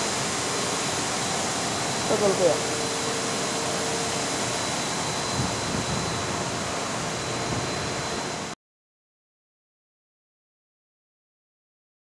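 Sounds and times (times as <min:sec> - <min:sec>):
condenser fans rushing air: 0:00.0 - 0:08.6.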